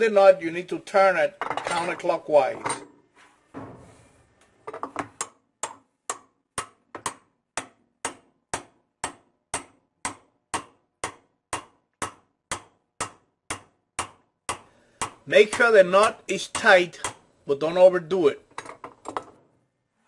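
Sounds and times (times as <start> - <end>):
hammer tapping metal wrench: 4.7 - 17.2.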